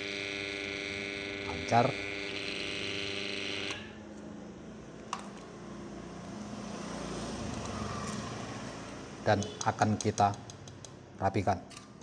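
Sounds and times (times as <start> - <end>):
motor electrical hum: 0.0 - 9.8.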